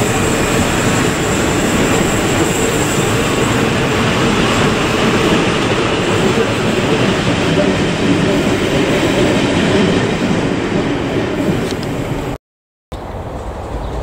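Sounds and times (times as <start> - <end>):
high wheel squeal: 0.0 - 4.9
train wheels rolling on rails: 0.0 - 12.4.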